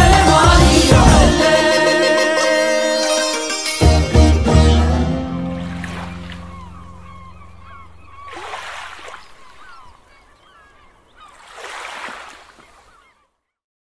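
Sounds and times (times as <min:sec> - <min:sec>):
held music chord: 0:00.0 - 0:07.7
birds calling: 0:05.5 - 0:13.6
small waves washing onto beach: 0:05.6 - 0:07.2, 0:08.2 - 0:13.1.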